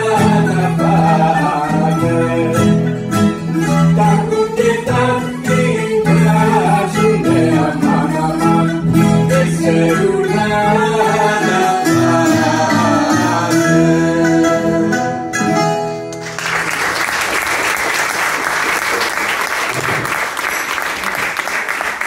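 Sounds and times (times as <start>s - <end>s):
plucked guitar: 0.0s - 16.4s
audience applause: 16.2s - 22.0s.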